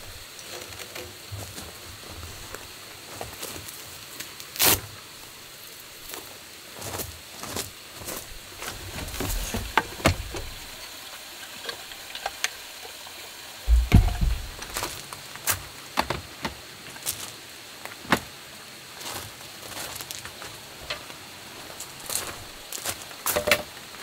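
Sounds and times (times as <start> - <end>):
faint steady hiss: 0.0 - 24.0
heavy low thump: 13.7 - 14.9
clicks and knocks of handling: 23.3 - 23.7.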